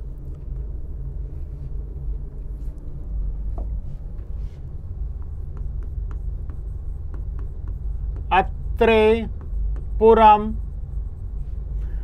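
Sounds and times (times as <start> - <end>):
low room rumble: 0.0 - 12.0
light ticks of writing on board: 5.0 - 10.4.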